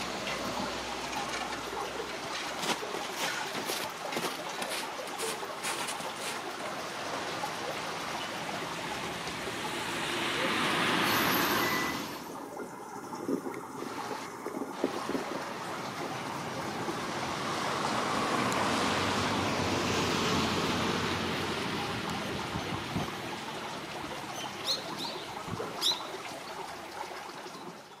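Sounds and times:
tyre noise of passing traffic: 0.0s - 28.0s
bird calls: 24.2s - 26.2s.

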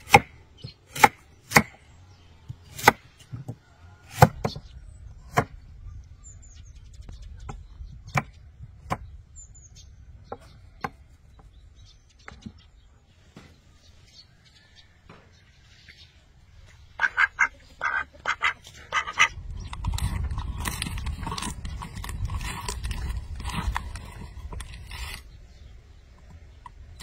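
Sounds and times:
duck quacking: 17.0s - 19.4s.

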